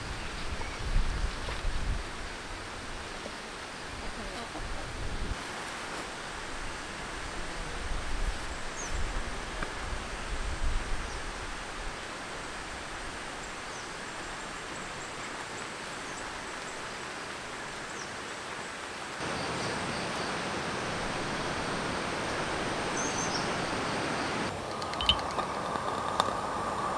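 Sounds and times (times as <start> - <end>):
wind rumble on microphone: 0.0 - 3.2, 3.9 - 5.5, 6.2 - 13.3
steady rain hiss: 0.0 - 26.9.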